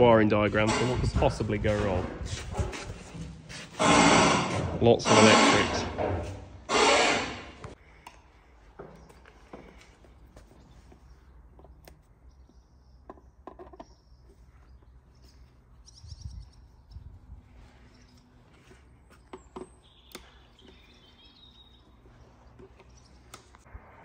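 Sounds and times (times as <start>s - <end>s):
birds chirping: 7.7s - 23.7s
clicks and taps handling wires: 8.8s - 12.1s.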